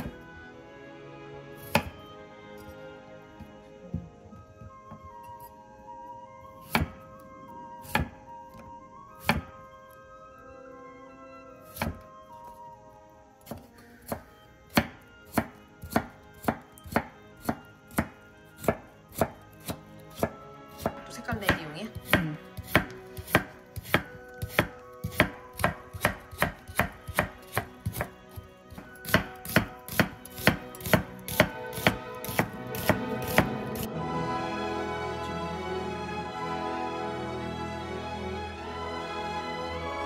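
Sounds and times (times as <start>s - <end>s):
knife chopping on wooden board: 1.6s - 2.0s, 6.6s - 7.0s, 7.8s - 8.2s, 9.2s - 9.5s, 11.7s - 12.0s, 13.4s - 33.9s.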